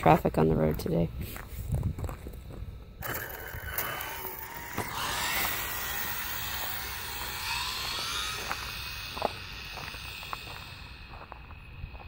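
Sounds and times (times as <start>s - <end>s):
rc truck electric motor whining: 3.0s - 12.0s.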